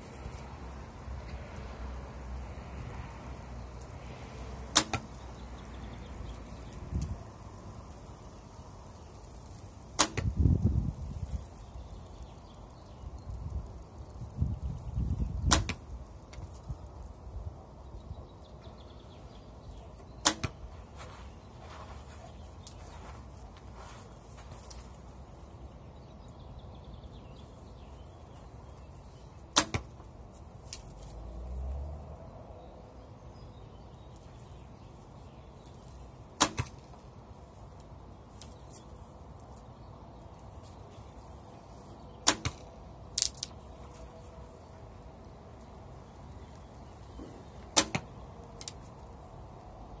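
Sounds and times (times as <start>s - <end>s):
arrow clicking against bow: 4.7s - 5.2s, 9.8s - 10.7s, 15.4s - 16.6s, 20.2s - 20.6s, 29.5s - 30.0s, 36.4s - 37.0s, 42.2s - 43.7s, 47.6s - 48.9s
bowstring crack: 4.7s - 5.2s, 9.9s - 10.5s, 36.4s - 37.0s, 42.2s - 44.1s, 47.6s - 48.9s.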